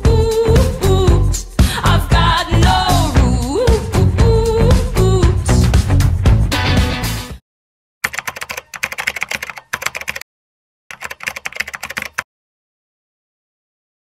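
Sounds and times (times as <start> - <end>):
computer keyboard typing: 8.0 - 10.2, 10.9 - 12.3.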